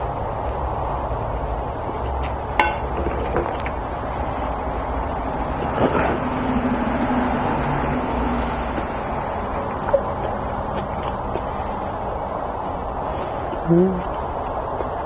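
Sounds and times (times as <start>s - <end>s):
ringing glassy clink: 2.6s - 3.1s.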